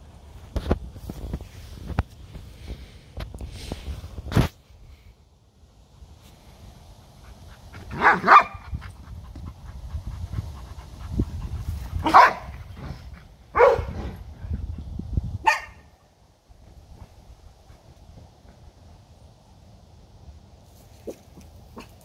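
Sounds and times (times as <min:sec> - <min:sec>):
dog barking: 0:07.9 - 0:08.7, 0:12.0 - 0:12.6, 0:13.5 - 0:14.0, 0:15.4 - 0:15.9.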